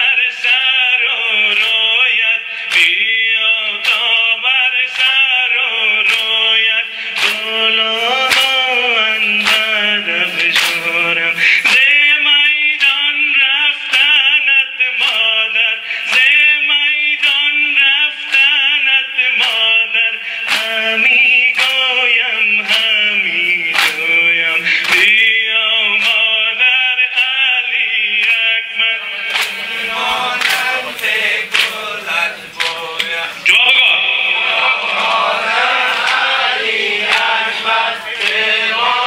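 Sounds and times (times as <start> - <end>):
man chanting a lament: 0.0 - 39.0
hands slapping chests: 6.0 - 6.4, 7.2 - 7.5, 8.1 - 8.8, 9.4 - 12.0, 20.5 - 20.8, 21.5 - 21.9, 22.6 - 25.2, 29.3 - 38.6.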